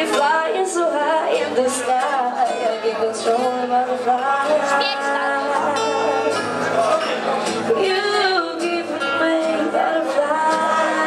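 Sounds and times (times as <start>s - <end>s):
acoustic guitar: 0.0s - 11.0s
man singing: 0.0s - 11.0s.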